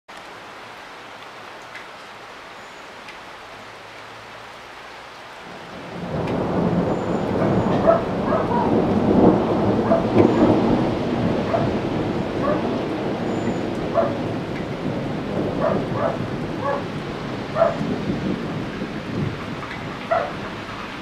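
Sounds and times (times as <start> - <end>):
steady rain falling: 0.1 - 21.0
thunder rumbling: 5.5 - 21.0.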